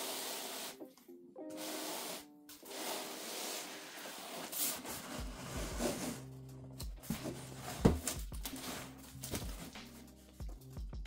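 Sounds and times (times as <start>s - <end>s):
soft background music: 0.0s - 11.0s
cardboard box scraping and rustling: 3.0s - 6.2s, 7.1s - 9.7s.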